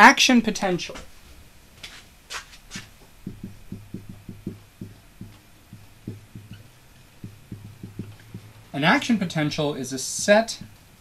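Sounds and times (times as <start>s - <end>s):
marker scratching: 2.7s - 8.6s, 10.0s - 10.8s
marker knocking on whiteboard: 3.2s - 8.7s, 10.2s - 10.8s.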